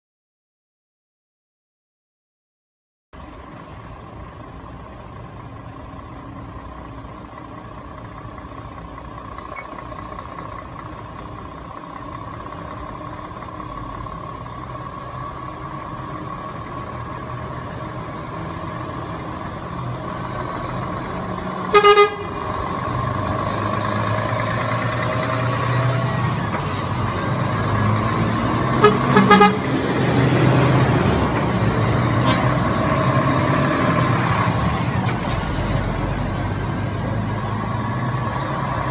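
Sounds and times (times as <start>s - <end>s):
truck diesel engines running: 3.2s - 38.9s
truck horn blast: 21.6s - 22.6s, 28.7s - 29.9s.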